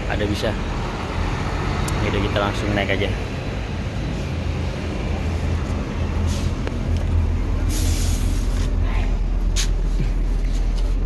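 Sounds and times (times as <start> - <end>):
bus diesel engine idling: 0.0 - 11.0
air hiss: 7.6 - 8.8.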